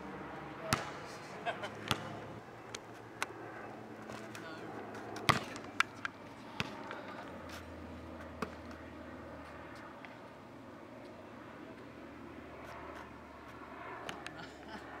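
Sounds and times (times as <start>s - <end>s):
basketball bouncing on asphalt: 0.7s - 1.0s, 1.8s - 3.3s, 5.2s - 5.9s, 6.6s - 7.1s.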